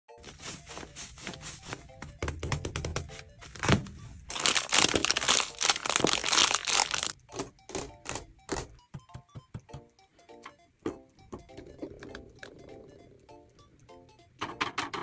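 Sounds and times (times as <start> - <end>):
soft music: 0.1 - 15.0
plastic bags crinkling: 3.5 - 7.2.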